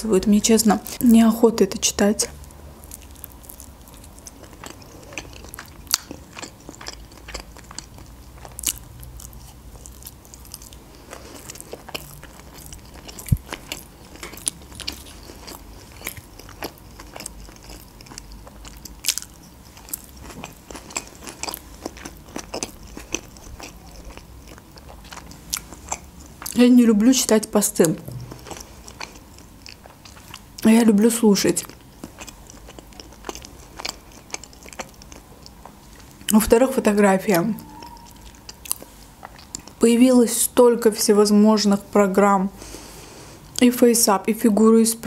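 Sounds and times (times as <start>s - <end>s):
person chewing food: 2.2s - 26.6s, 27.8s - 30.7s, 31.6s - 36.4s, 37.3s - 39.8s.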